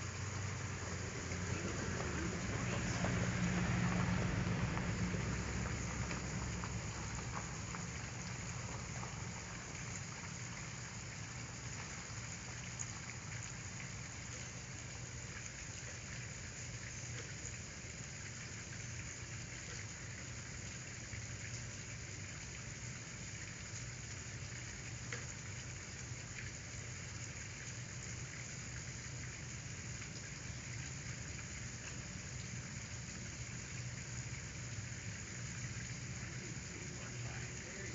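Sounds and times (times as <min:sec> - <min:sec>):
steady hiss: 0:00.0 - 0:37.9
faint ticks: 0:24.9 - 0:25.4.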